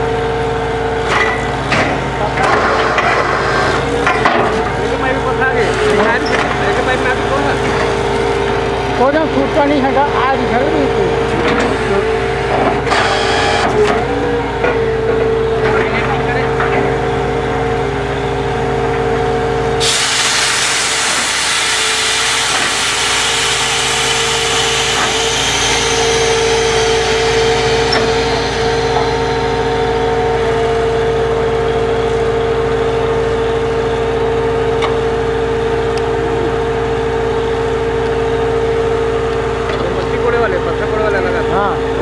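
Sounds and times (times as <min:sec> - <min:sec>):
drilling rig engine running: 0:00.0 - 0:42.0
loud rushing hiss: 0:19.8 - 0:30.9.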